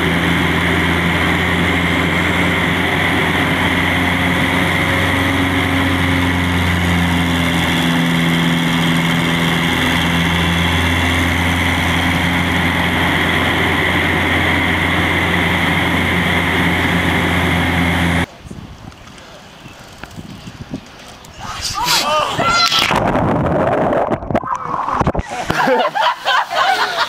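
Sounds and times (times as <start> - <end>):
light aircraft engine droning: 0.0 - 21.3.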